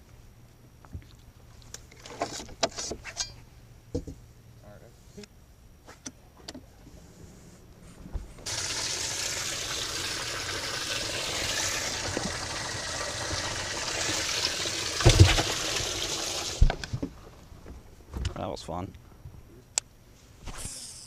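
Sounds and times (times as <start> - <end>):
water rushing from pump: 8.4 - 17.4.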